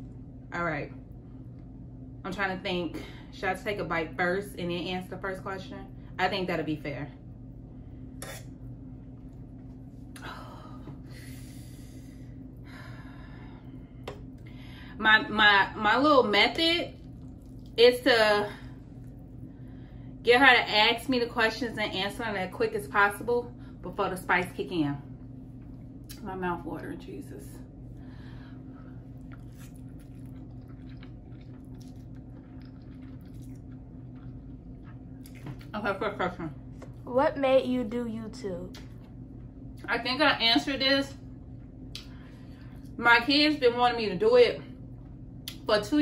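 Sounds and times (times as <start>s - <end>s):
steady low hum: 0.0s - 46.0s
wet mouth sounds: 29.2s - 35.7s.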